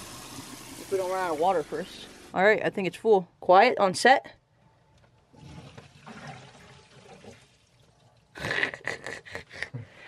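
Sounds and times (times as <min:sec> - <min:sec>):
water draining and gurgling: 0:05.3 - 0:09.0.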